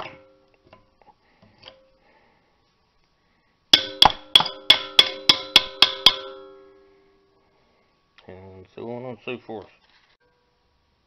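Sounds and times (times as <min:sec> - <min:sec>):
hammer striking metal socket: 0:03.8 - 0:06.6.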